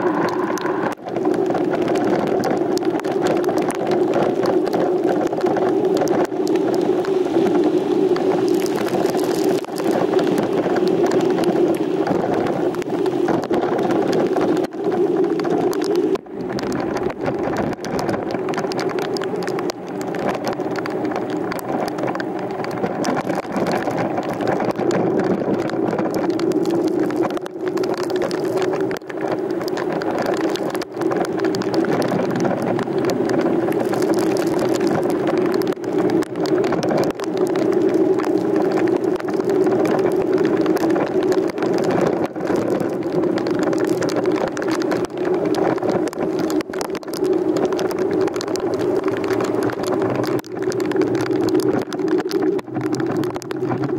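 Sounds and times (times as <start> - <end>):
vehicle engine drone: 0.0 - 1.3.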